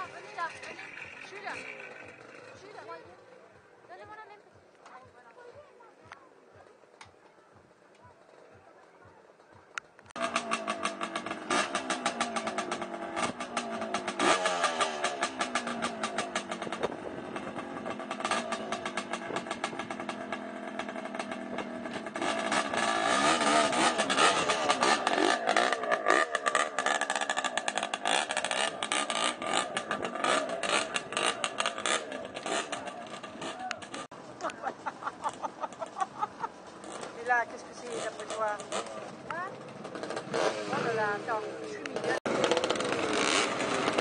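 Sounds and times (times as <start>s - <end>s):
motorcycle engine revving: 0.0s - 4.6s, 8.0s - 44.0s.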